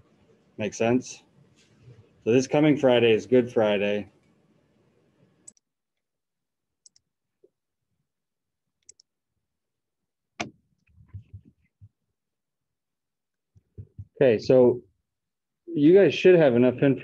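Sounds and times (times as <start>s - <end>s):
computer mouse clicks: 5.4s - 5.6s, 8.8s - 9.1s.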